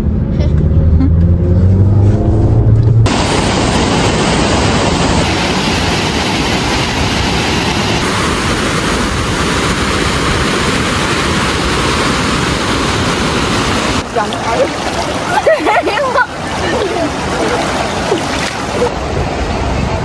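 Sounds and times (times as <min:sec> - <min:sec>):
waterfall rushing: 0:03.1 - 0:20.0.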